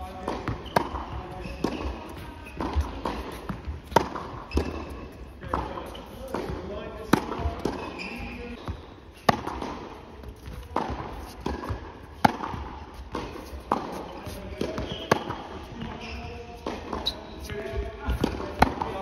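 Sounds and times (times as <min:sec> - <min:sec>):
rackets hitting tennis balls: 0:00.0 - 0:19.0
tennis balls bouncing: 0:00.0 - 0:19.0.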